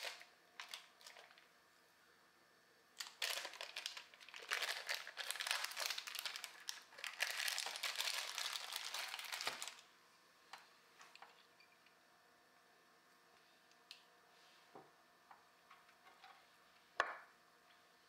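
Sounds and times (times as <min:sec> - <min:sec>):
plastic bag crinkling: 0:00.0 - 0:01.5, 0:03.0 - 0:09.9.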